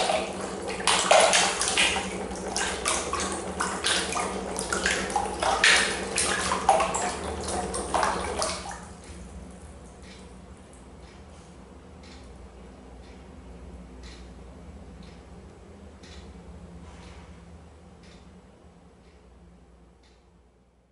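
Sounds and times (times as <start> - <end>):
water splashing in plastic tub: 0.0 - 9.0.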